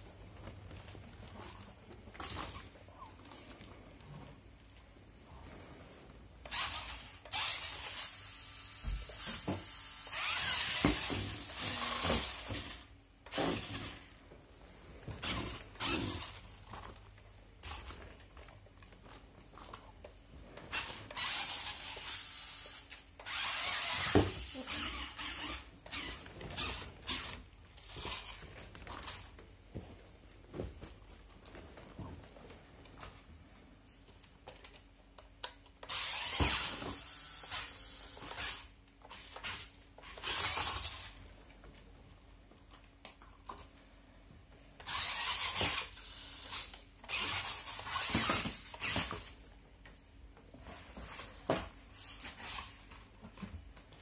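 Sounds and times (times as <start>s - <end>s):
toy motor and gears whining: 6.4s - 14.1s, 15.2s - 16.9s, 20.7s - 29.3s, 35.8s - 41.2s, 44.8s - 49.4s, 51.9s - 52.8s.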